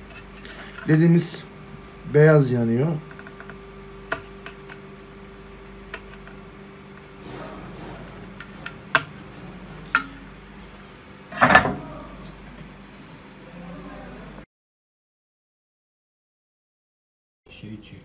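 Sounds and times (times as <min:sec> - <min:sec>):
metal clatter: 0:07.2 - 0:10.6.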